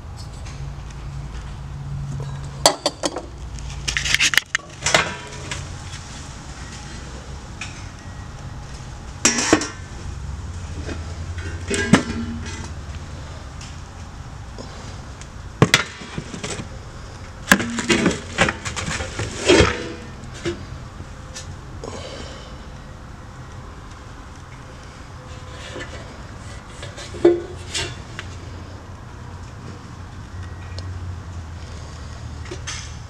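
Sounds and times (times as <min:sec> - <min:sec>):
silver trays clinking: 0:11.4 - 0:12.8, 0:17.5 - 0:18.7.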